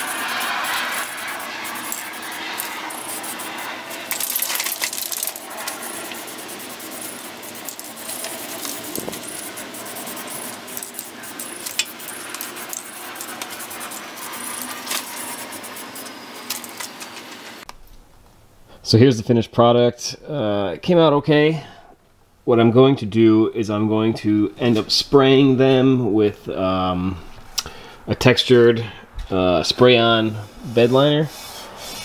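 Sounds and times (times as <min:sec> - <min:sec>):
spray can rattling when shaken: 0:00.0 - 0:16.9
spray paint hissing: 0:00.0 - 0:17.6.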